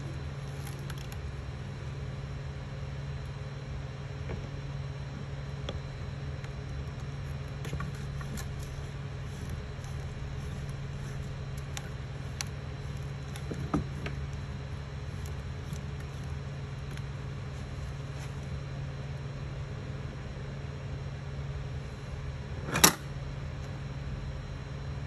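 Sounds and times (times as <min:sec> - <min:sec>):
printer humming: 0:00.0 - 0:25.0.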